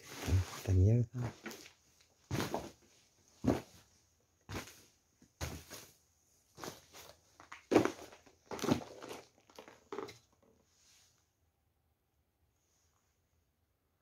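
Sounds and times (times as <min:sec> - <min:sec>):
footsteps on hard floor: 0:02.3 - 0:02.8, 0:05.4 - 0:05.9.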